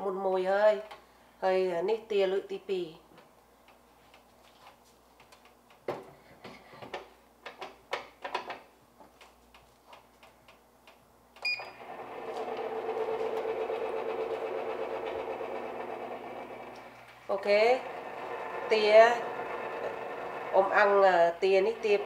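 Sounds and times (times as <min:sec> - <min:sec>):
rotisserie motor humming: 0:11.8 - 0:17.2, 0:17.8 - 0:22.0.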